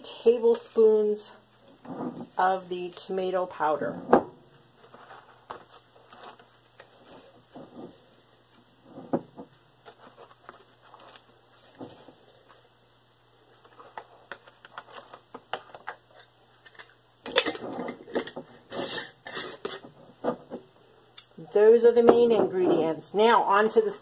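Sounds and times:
jar scraping and rustling: 1.8s - 2.4s, 4.8s - 12.6s, 13.7s - 20.6s.

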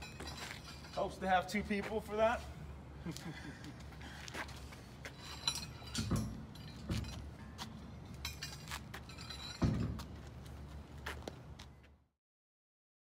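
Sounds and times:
metallic clinks: 0.0s - 1.2s, 5.1s - 10.3s.

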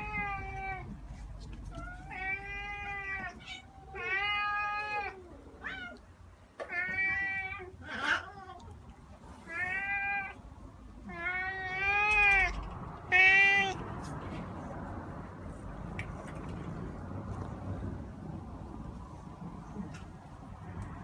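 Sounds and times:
cat meowing: 0.0s - 1.0s, 1.7s - 6.0s, 6.6s - 8.7s, 9.5s - 10.4s, 11.0s - 13.8s.

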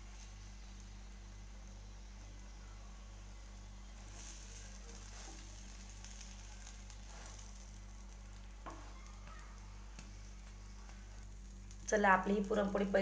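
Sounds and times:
flatbread sizzling in ghee: 0.0s - 13.0s
low electrical hum: 0.0s - 13.0s
wooden spatula scraping griddle: 4.1s - 7.7s.

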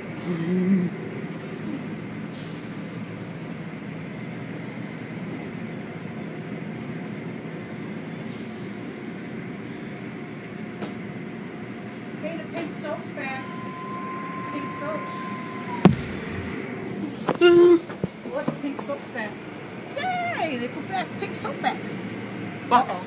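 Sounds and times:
sharp knocks: 14.5s - 16.7s.

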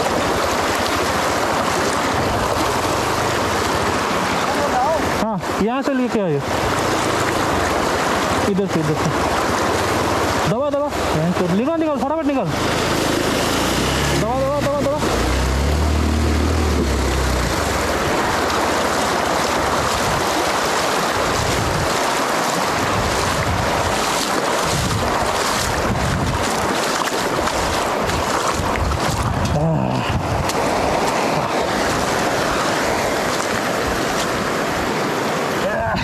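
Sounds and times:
river water rushing: 0.0s - 36.0s
wheel splashing through water: 0.0s - 36.0s
wind on microphone: 16.2s - 35.0s.

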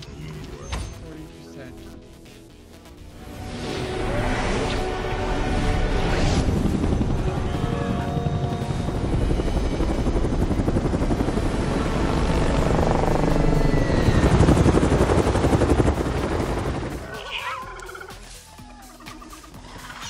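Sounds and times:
helicopter rotors chopping: 3.9s - 17.2s.

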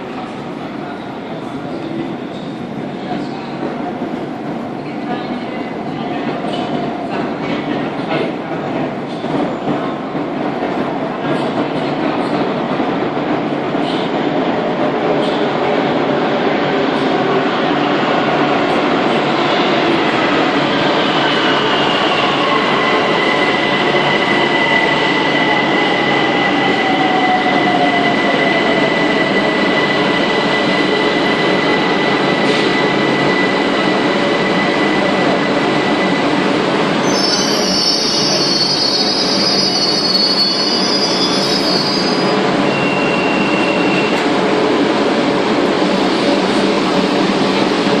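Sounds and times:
train rolling noise: 0.0s - 48.0s
high hissing brake squeal: 37.0s - 44.2s.

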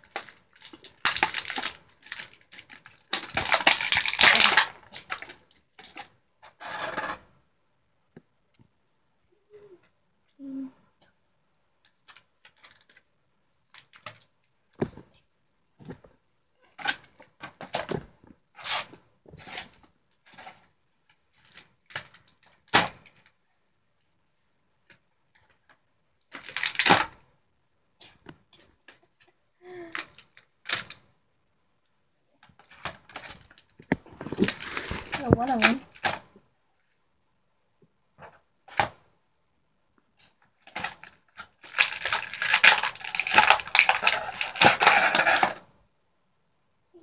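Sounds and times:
plastic packaging crinkling: 0.0s - 6.1s, 12.0s - 13.1s, 26.3s - 27.2s, 32.6s - 36.2s, 40.6s - 45.6s
scissors cutting plastic: 0.0s - 7.1s, 40.7s - 45.6s.

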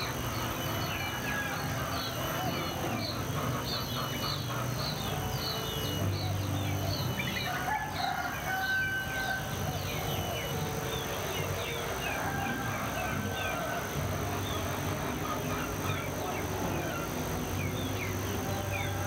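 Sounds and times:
songbird chirping: 0.0s - 19.0s
rooster crowing: 0.6s - 3.0s, 7.3s - 10.3s, 11.8s - 14.6s.

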